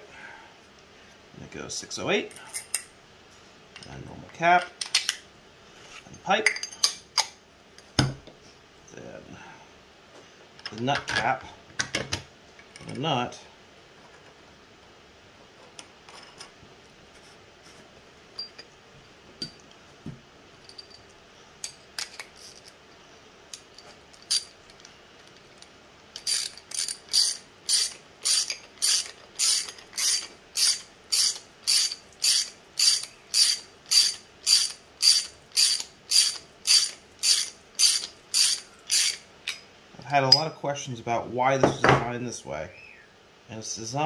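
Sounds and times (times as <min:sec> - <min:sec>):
small parts clicking: 0:23.5 - 0:39.6.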